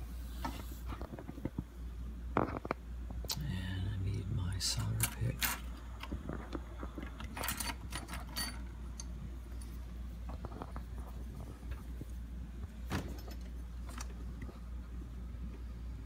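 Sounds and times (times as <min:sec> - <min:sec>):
steady low hum: 0:00.0 - 0:16.0
small tools clicking and rattling: 0:07.0 - 0:09.1.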